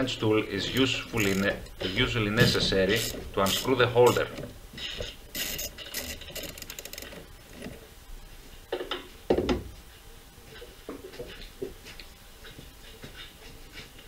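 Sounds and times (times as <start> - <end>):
socket wrench clicking and rattling: 0.8 - 1.8, 2.9 - 4.5, 5.4 - 7.2
dull knocks: 2.3 - 3.1.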